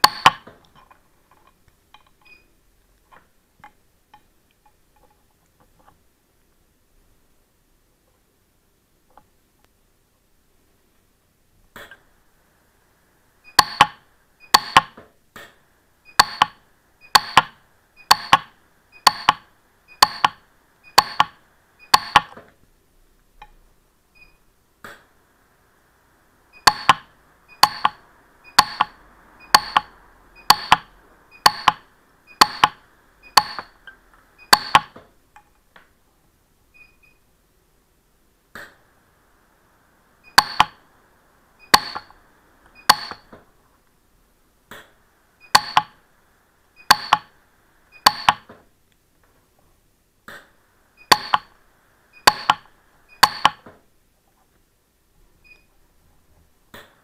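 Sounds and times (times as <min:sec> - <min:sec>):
faint hiss: 0:00.0 - 0:57.0.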